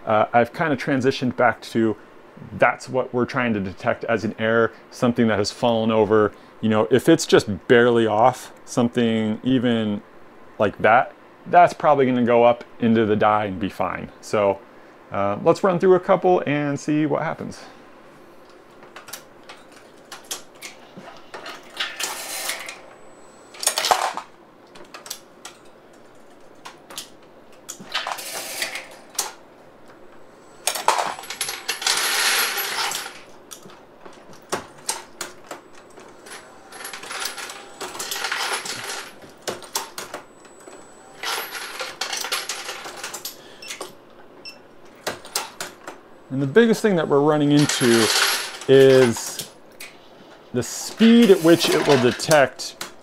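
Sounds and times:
reloading press rattling: 47.5 - 49.3.

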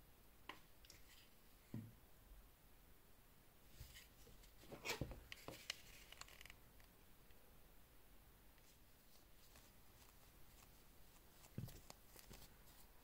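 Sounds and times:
cloth wiping watch case: 8.6 - 13.0.

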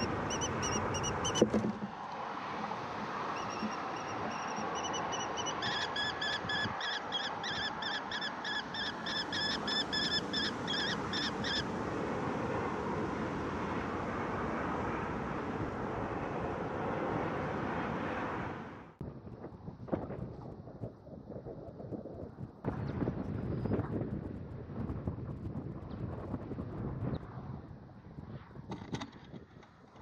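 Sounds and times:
kestrel shrill calls: 0.0 - 1.4, 3.4 - 11.7
wind noise: 0.0 - 30.0.

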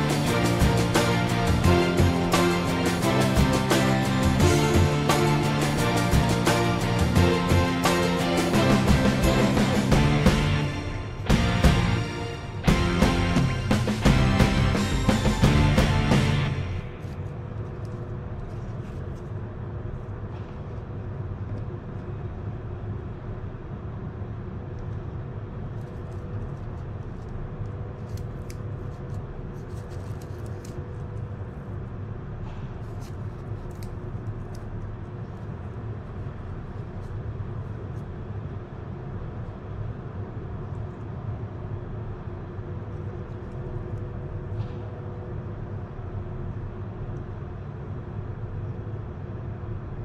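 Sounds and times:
faint hum: 0.0 - 50.0.

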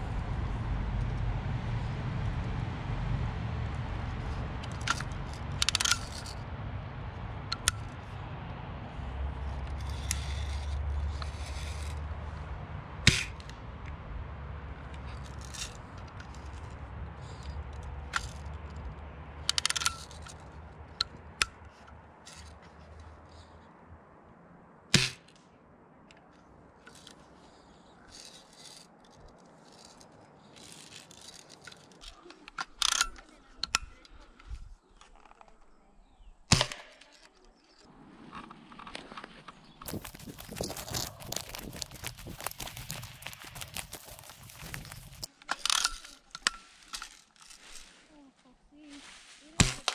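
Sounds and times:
low rumble: 0.0 - 9.5
rifle lever metallic clicks: 30.6 - 34.0, 45.3 - 47.8.

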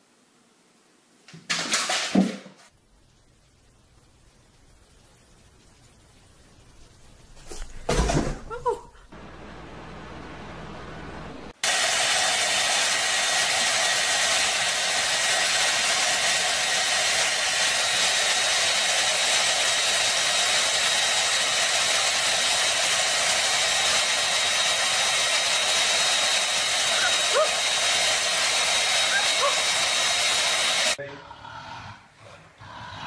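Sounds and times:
hair dryer blowing: 9.2 - 31.0.

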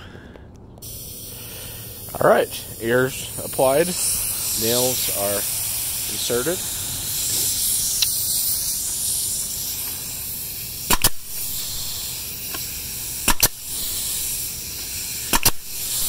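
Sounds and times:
nail gun firing: 10.8 - 11.4, 12.5 - 14.1, 15.2 - 16.0.

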